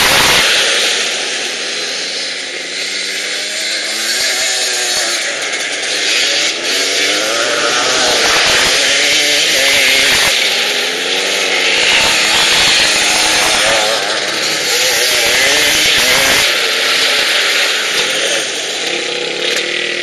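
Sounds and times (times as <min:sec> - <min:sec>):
two-stroke engine revving: 0:00.0 - 0:20.0.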